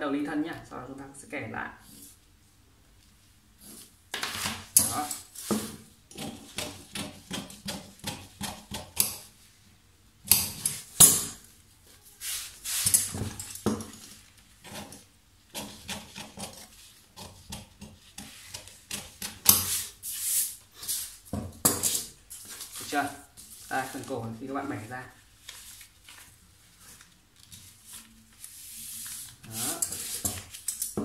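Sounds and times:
paper rustling: 22.4s - 30.8s
paper crackles: 22.5s - 30.7s.

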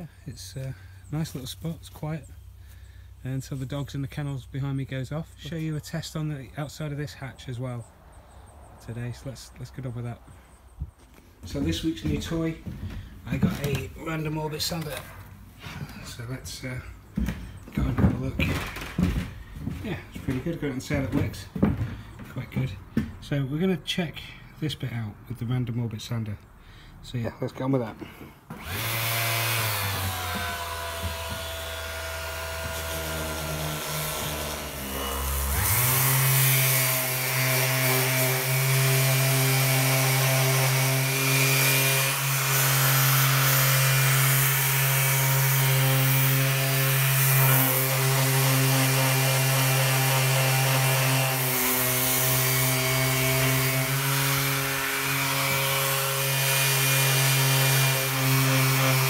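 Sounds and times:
orbit sander grinding steel: 28.5s - 59.0s.

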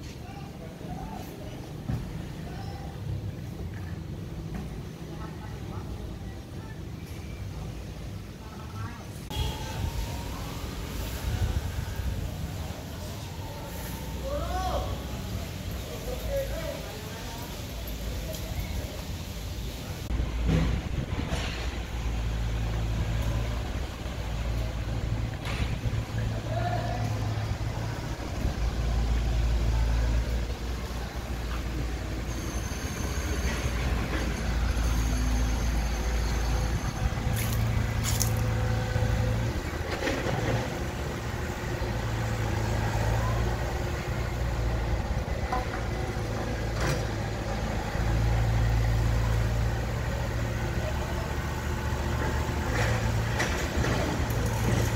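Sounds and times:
diesel engine rumble: 0.0s - 54.9s.

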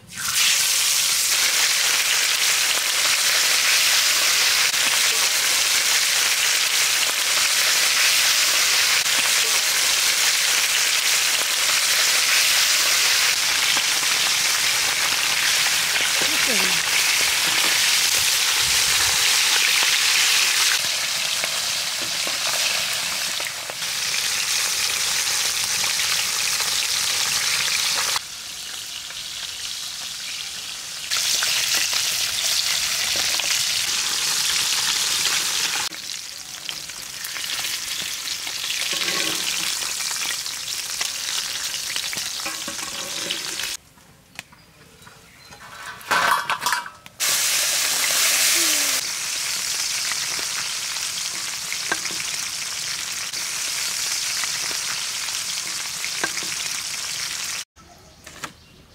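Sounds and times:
fish sizzling in hot oil: 0.1s - 43.8s, 47.2s - 57.7s.

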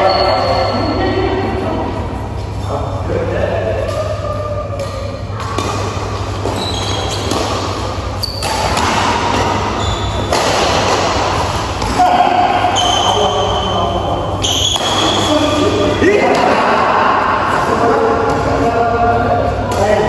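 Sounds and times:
rackets striking shuttlecock: 3.8s - 13.2s, 14.4s - 15.6s
shoes squeaking on floor: 6.4s - 7.5s, 8.1s - 8.9s, 9.6s - 10.3s, 12.7s - 13.8s, 14.4s - 15.6s.

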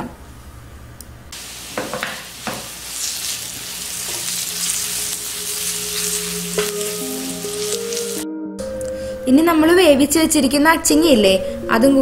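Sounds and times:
leaves sizzling in hot oil: 1.4s - 8.2s
spatula knocking against pan: 1.8s - 2.7s.

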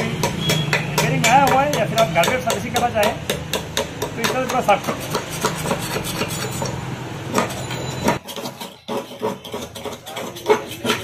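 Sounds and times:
metal ruler scraping metal tube: 4.8s - 6.8s, 7.4s - 11.0s.

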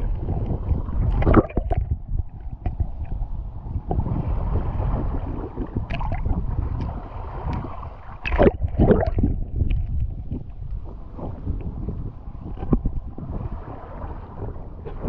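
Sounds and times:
water splashes: 0.0s - 11.4s
water lapping and sloshing: 0.0s - 15.0s.

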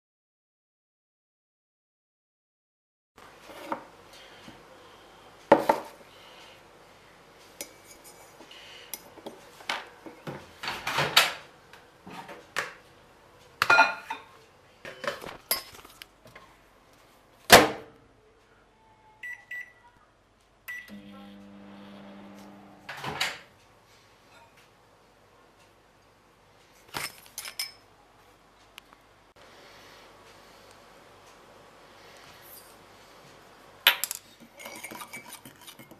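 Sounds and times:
steady low hum: 20.6s - 23.8s.

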